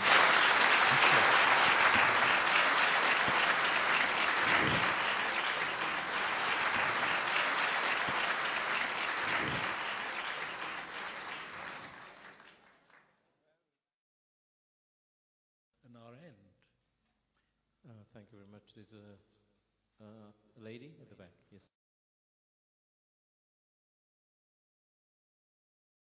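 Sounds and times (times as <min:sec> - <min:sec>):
large audience applauding: 0:00.0 - 0:13.0.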